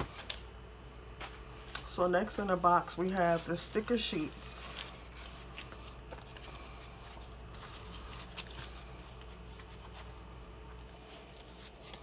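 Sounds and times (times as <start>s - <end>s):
paper sheets rustling: 1.2s - 12.0s.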